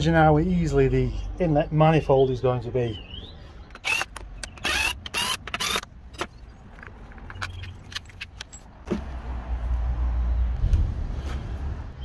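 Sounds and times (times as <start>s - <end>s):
rattling and scraping of tools: 3.7s - 9.1s.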